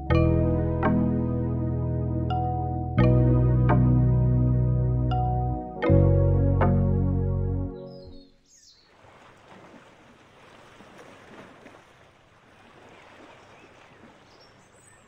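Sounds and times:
small waves lapping on sand: 0:08.8 - 0:15.0.

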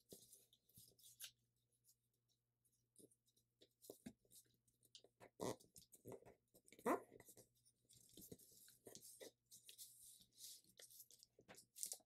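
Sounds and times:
paper rustling and crinkling: 0:07.2 - 0:12.0.

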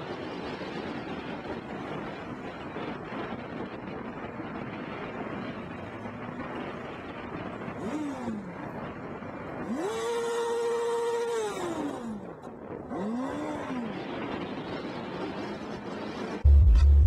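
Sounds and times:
wind: 0:00.0 - 0:17.0
motorbike engine revving: 0:07.7 - 0:08.8, 0:09.5 - 0:17.0.

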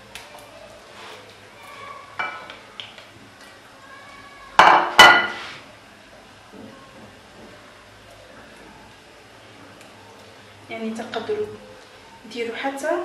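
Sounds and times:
glass bowl clinking: 0:04.6 - 0:05.4.

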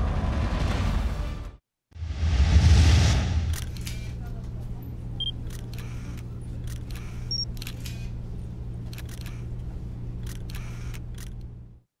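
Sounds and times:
camera clicks: 0:03.5 - 0:04.1, 0:05.4 - 0:08.1, 0:08.8 - 0:09.5, 0:10.2 - 0:11.5.

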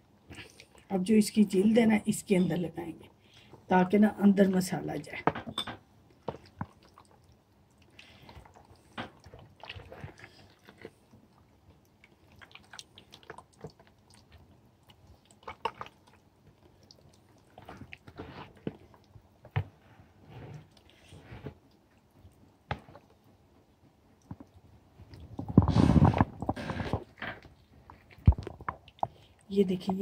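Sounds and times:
hands squelching wet paste on chicken: 0:06.2 - 0:19.1.

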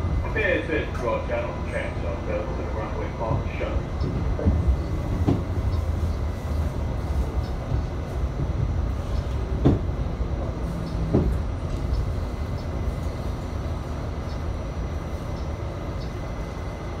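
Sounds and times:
subway car rumbling on track: 0:00.0 - 0:17.0
knock inside subway car: 0:05.2 - 0:05.6, 0:09.6 - 0:10.0, 0:11.0 - 0:11.4.

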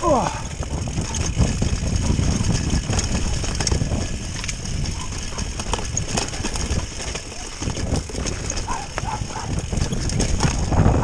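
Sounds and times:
bicycle rattling over stone track: 0:00.0 - 0:11.0
tyre rumble: 0:00.0 - 0:11.0.

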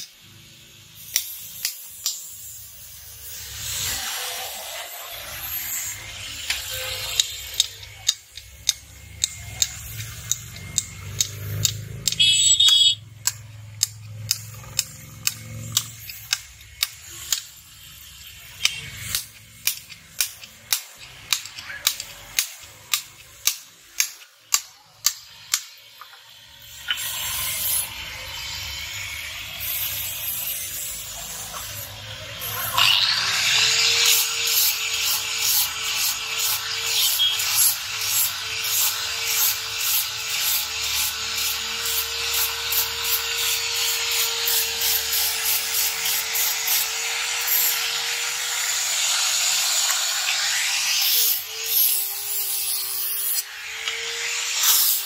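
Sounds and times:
metal tapping on blade: 0:07.2 - 0:17.5, 0:18.6 - 0:25.7.

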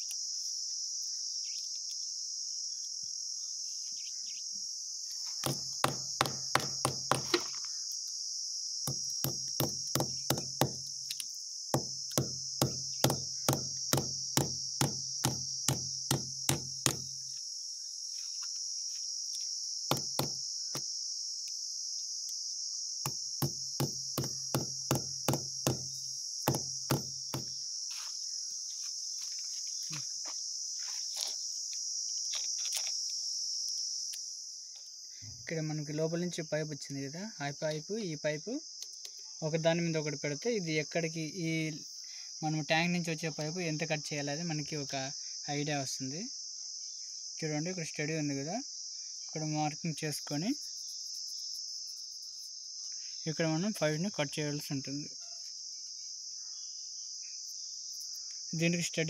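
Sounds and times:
insects chirring: 0:00.0 - 0:59.0
hammer striking nails: 0:05.4 - 0:07.6, 0:08.9 - 0:10.9, 0:11.8 - 0:17.1, 0:19.9 - 0:20.4, 0:23.0 - 0:27.5.

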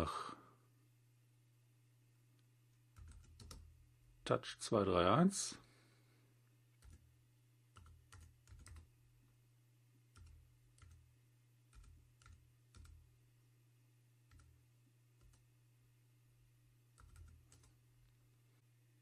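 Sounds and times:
keyboard keystrokes: 0:17.0 - 0:17.8.

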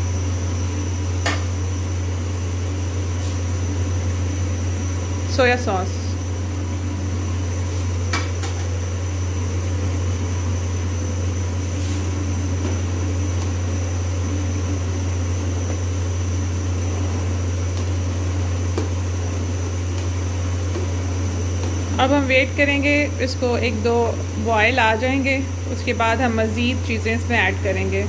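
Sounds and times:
low mechanical hum: 0:00.0 - 0:28.0.

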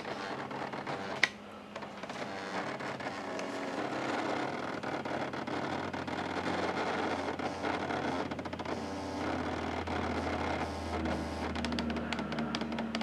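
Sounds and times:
fax machine printing ticking buzz: 0:08.7 - 0:11.8.

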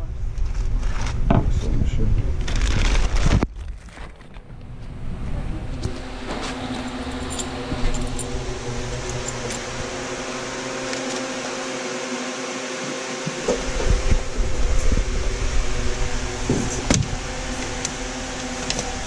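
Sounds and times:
steady machine hum: 0:04.4 - 0:19.0.

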